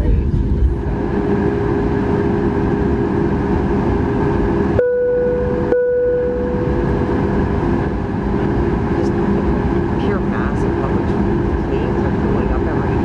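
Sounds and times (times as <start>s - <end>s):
aircraft cabin engine rumble: 0.0s - 13.0s
mid-pitched whine: 0.0s - 13.0s.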